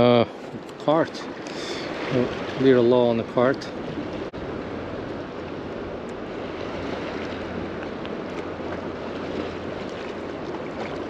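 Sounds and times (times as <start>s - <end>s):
small waves lapping: 0.0s - 11.0s
small water splashes: 0.4s - 4.3s, 5.4s - 11.0s
wind on microphone: 3.6s - 11.0s.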